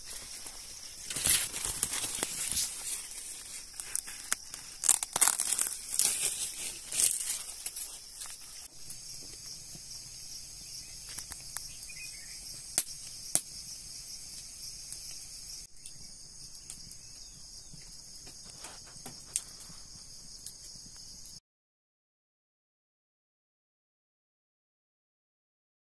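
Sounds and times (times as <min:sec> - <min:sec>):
wood fire crackling: 0:00.0 - 0:17.1
high-pitched insect chorus: 0:00.0 - 0:21.4.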